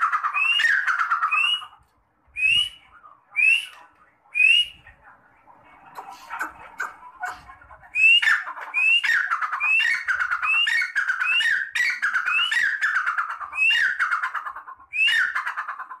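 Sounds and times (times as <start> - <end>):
partridge calling: 0.0 - 1.8, 5.9 - 16.0.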